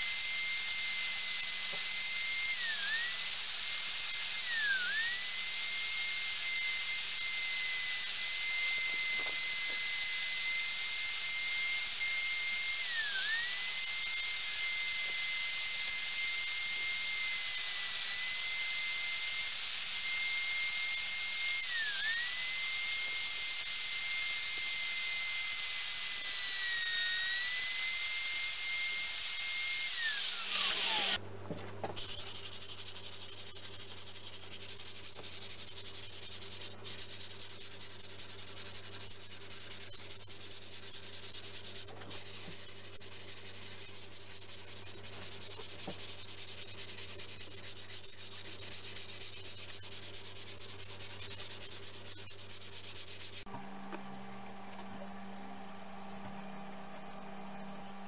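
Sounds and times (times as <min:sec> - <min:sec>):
electric router whining: 0:00.0 - 0:31.2
sandpaper rubbing on fibreboard: 0:32.0 - 0:53.5.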